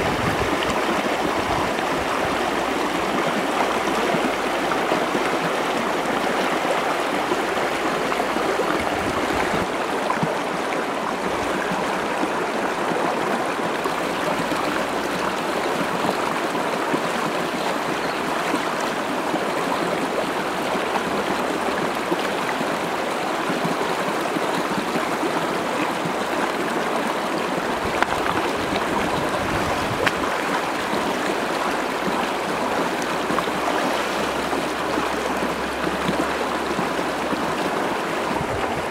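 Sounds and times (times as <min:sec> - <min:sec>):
stream rushing over rocks: 0:00.0 - 0:38.9.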